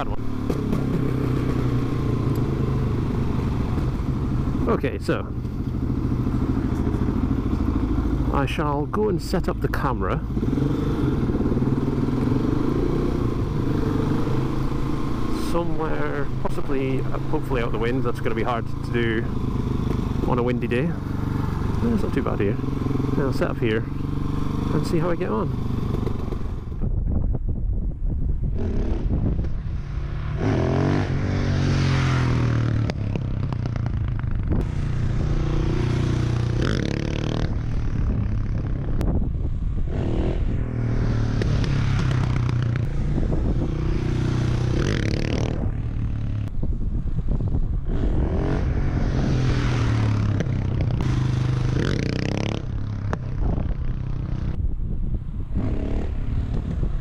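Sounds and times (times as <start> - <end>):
motorcycle engine revving: 0.0 - 26.9, 28.5 - 54.6, 55.2 - 57.0
wind buffeting microphone: 25.6 - 57.0.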